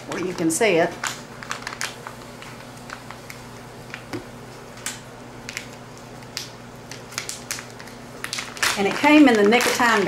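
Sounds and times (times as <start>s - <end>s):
foil plastic pouch crinkling: 1.0s - 4.1s, 5.4s - 10.0s.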